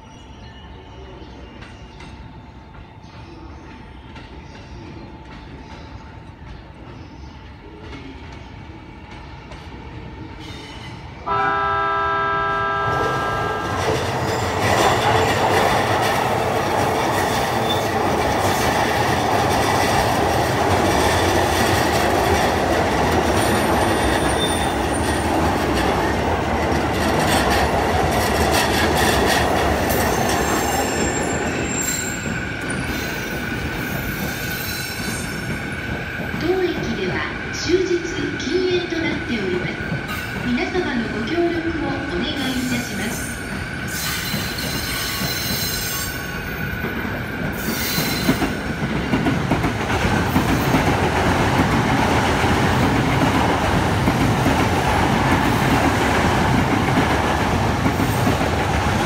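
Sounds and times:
train wheels rumbling: 0:01.4 - 0:59.0
train horn: 0:11.2 - 0:14.0
wheel squeals: 0:29.9 - 0:35.5.

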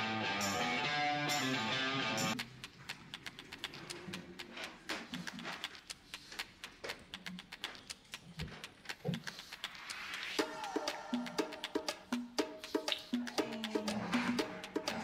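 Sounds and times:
dog snorting: 0:02.4 - 0:10.4.

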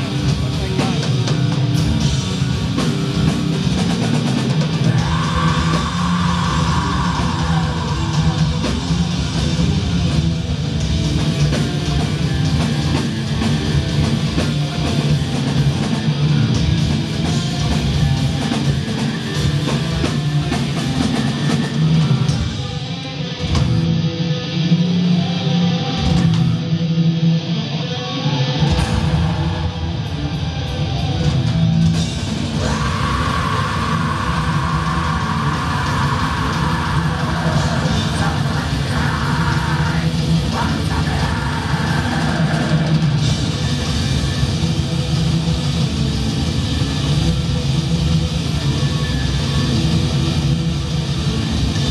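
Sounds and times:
deep bass: 0:00.0 - 0:22.7, 0:28.6 - 0:51.9
drum kit: 0:00.0 - 0:24.6, 0:28.6 - 0:51.9
distorted electric guitars: 0:00.0 - 0:51.9
person singing: 0:04.8 - 0:09.3, 0:32.6 - 0:43.3.

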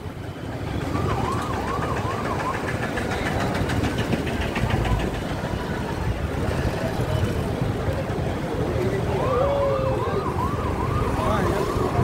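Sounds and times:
warbling siren: 0:00.0 - 0:03.6, 0:08.9 - 0:12.0
street traffic rumble: 0:00.0 - 0:12.0.

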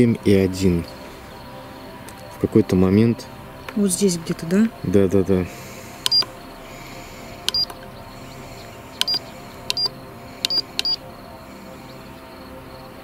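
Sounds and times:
button clicks: 0:06.0 - 0:06.3, 0:07.5 - 0:07.8, 0:09.0 - 0:11.0
meter beeping: 0:06.0 - 0:06.3, 0:07.5 - 0:07.8, 0:09.0 - 0:11.0.

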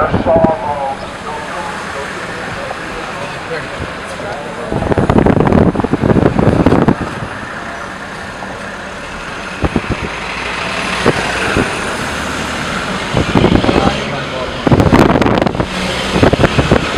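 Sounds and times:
bus engine and road noise: 0:00.0 - 0:16.9
street traffic: 0:00.0 - 0:16.9.

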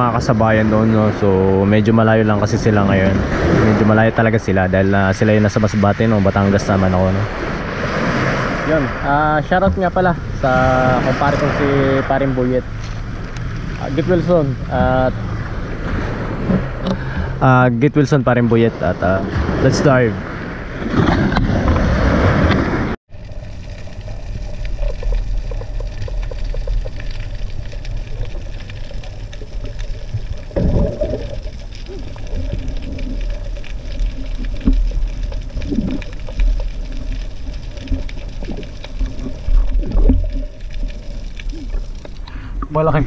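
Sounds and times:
faint underwater clicks and crackles: 0:00.0 - 0:18.2, 0:22.4 - 0:43.0
muffled underwater rumble: 0:00.0 - 0:43.0
water splashing: 0:00.0 - 0:43.0.

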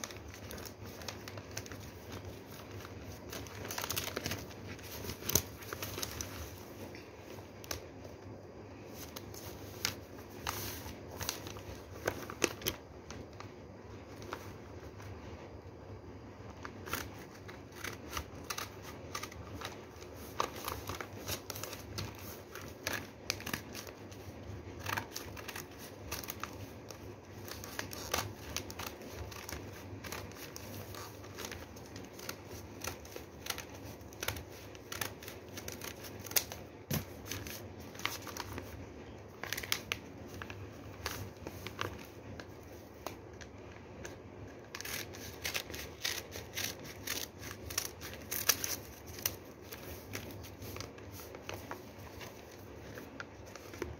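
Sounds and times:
paper rustling and crinkling: 0:00.0 - 0:08.1, 0:08.7 - 0:15.3, 0:16.5 - 0:53.9
scissors snipping newspaper: 0:16.6 - 0:24.2, 0:24.8 - 0:38.7, 0:44.0 - 0:53.9.

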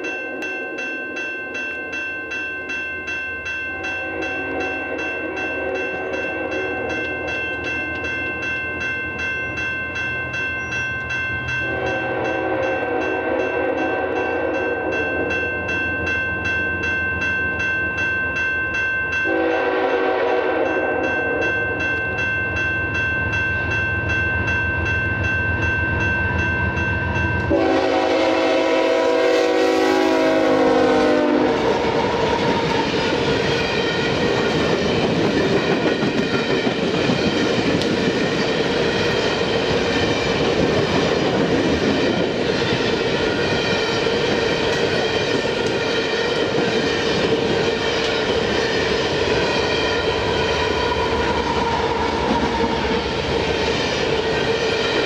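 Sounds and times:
train horn blasts: 0:03.7 - 0:07.0, 0:11.6 - 0:15.1, 0:19.3 - 0:21.2, 0:27.5 - 0:32.8.

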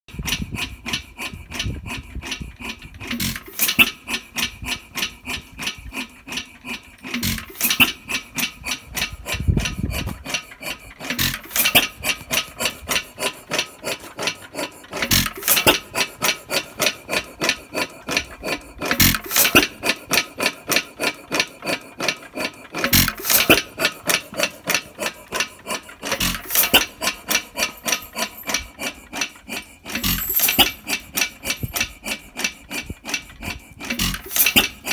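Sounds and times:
engine parts clacking: 0:00.1 - 0:34.9.

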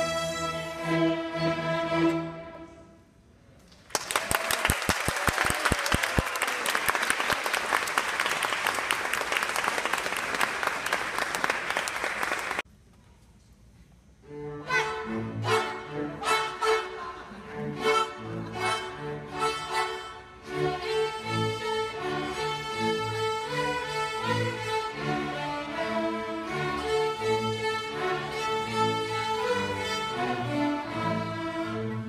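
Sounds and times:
string orchestra playing: 0:00.0 - 0:03.0, 0:14.2 - 0:32.0
audience clapping: 0:03.7 - 0:12.6.

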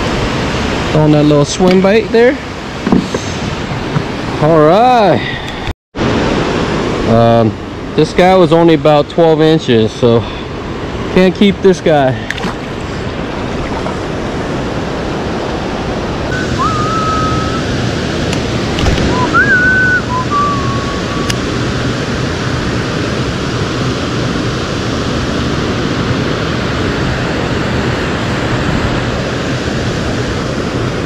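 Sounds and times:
whistle-like tones: 0:16.3 - 0:17.8, 0:19.0 - 0:21.3.

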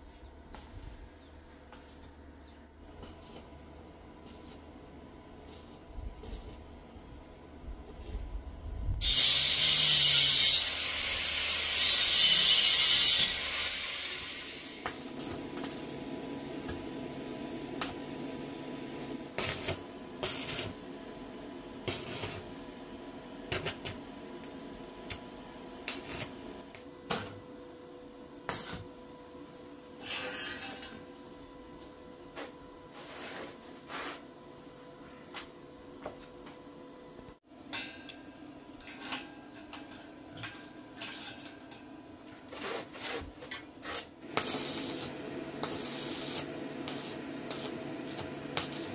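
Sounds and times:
arc welding sizzling hiss: 0:03.0 - 0:06.7, 0:08.9 - 0:27.4, 0:28.4 - 0:29.0, 0:44.2 - 0:48.9.

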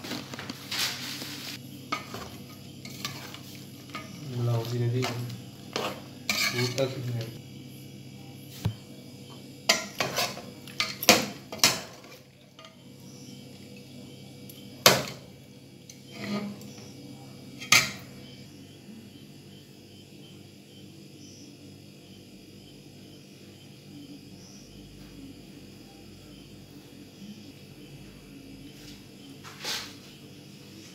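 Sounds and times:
faint repeating chirps: 0:12.7 - 0:14.8, 0:15.4 - 0:29.4.

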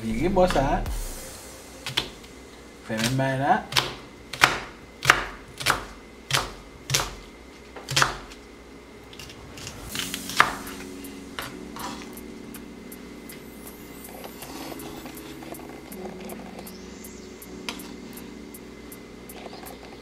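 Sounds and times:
knife chopping onion on board: 0:03.0 - 0:07.2, 0:07.8 - 0:08.4.

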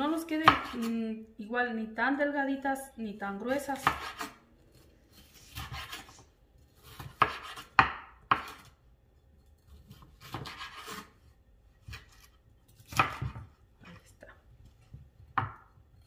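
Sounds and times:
knife slicing pepper: 0:03.6 - 0:08.8, 0:09.7 - 0:11.2, 0:11.8 - 0:13.5.

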